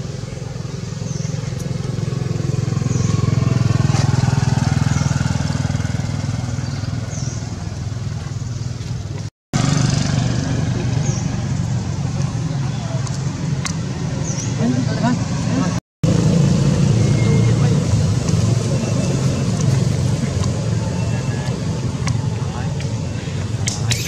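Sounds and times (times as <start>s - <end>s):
motor engine running: 0.0s - 14.9s.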